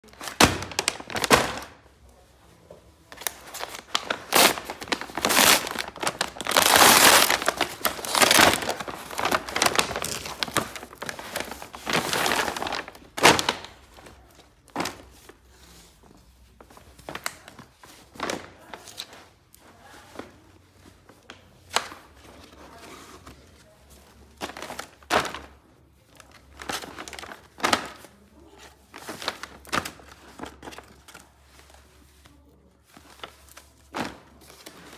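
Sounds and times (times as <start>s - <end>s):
packaging crinkling and rustling: 0.0s - 1.9s, 3.1s - 34.9s.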